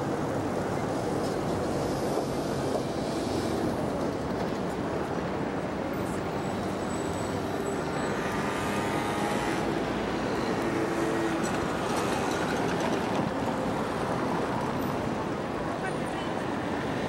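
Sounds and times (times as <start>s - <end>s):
cars passing: 6.2s - 17.0s.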